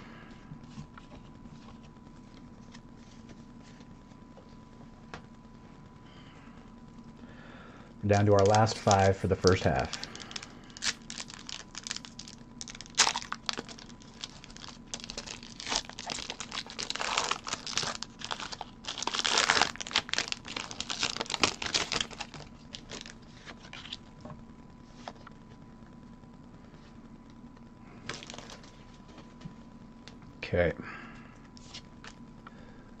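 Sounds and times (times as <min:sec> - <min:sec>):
foil wrapper tearing and crinkling: 0:08.4 - 0:24.0, 0:28.1 - 0:28.7.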